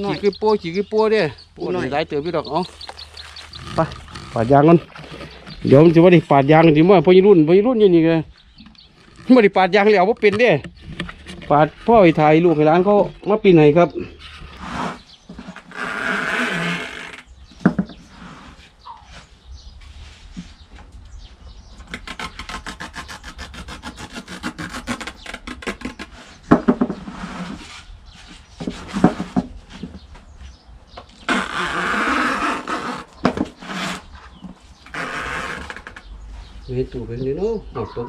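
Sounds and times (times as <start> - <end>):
knife sawing through rubber: 14.5 - 15.0, 21.9 - 26.4, 31.3 - 34.1.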